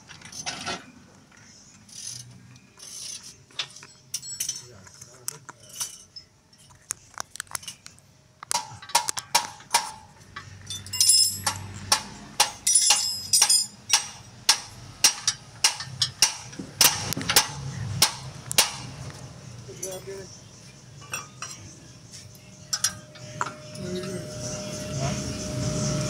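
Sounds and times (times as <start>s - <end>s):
metal tools knocking and clanking: 3.2s - 6.8s, 7.5s - 18.9s, 21.0s - 21.8s, 22.7s - 24.2s.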